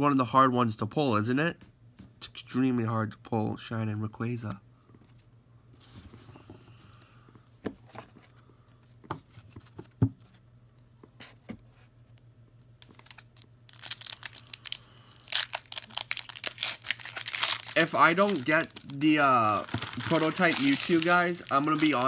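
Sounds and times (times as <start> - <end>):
foil wrapper crinkling and tearing: 12.8 - 22.0.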